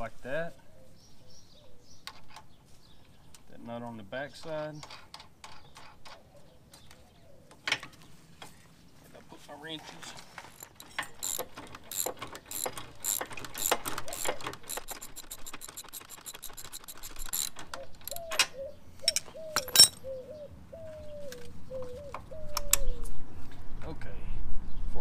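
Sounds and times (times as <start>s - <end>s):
ratchet wrench clicking: 10.5s - 18.3s, 19.0s - 20.0s.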